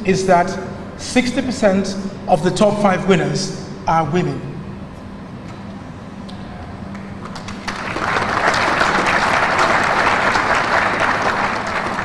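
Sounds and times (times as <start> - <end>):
low steady hum: 0.0 - 12.0
audience applause: 7.2 - 12.0.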